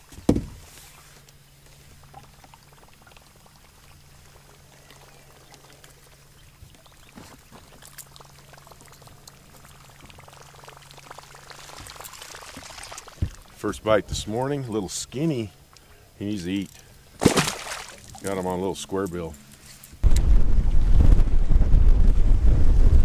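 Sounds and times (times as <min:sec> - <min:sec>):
water lapping against boat hull: 0:00.0 - 0:14.6.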